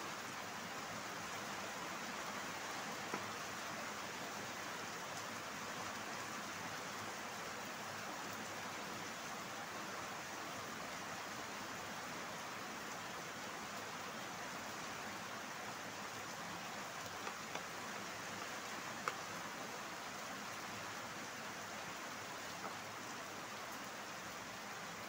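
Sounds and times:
steady hiss: 0:00.0 - 0:25.0.

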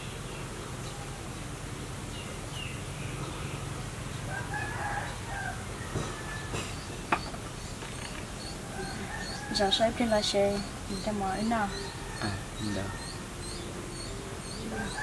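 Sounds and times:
steady low hum: 0:00.0 - 0:15.0
rooster crowing: 0:04.3 - 0:06.9, 0:08.4 - 0:10.4, 0:11.7 - 0:15.0
small bird chirps: 0:06.4 - 0:15.0.

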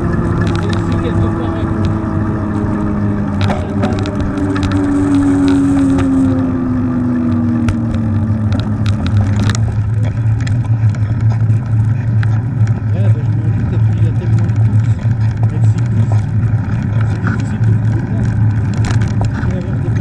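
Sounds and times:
bike clicks and rattles: 0:00.0 - 0:06.4, 0:07.0 - 0:20.0
hum falling in pitch: 0:00.0 - 0:12.5
bike tyres rolling: 0:00.0 - 0:20.0
wind rushing over microphone: 0:00.0 - 0:20.0.

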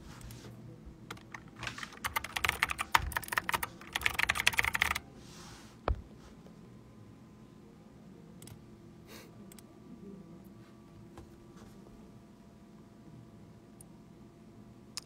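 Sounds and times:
rapid keyboard typing: 0:01.1 - 0:05.0.

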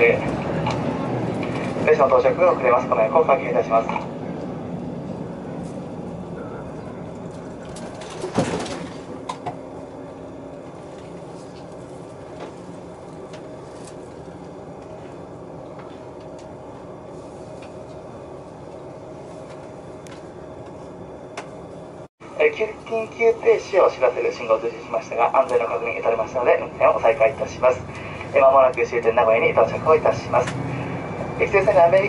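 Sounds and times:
diesel railcar engine humming: 0:00.0 - 0:32.0.

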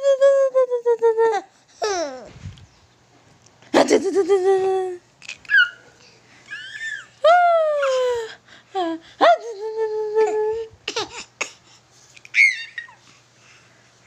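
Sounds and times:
baby squealing and cooing: 0:01.8 - 0:02.3, 0:05.2 - 0:07.2, 0:12.3 - 0:13.0.

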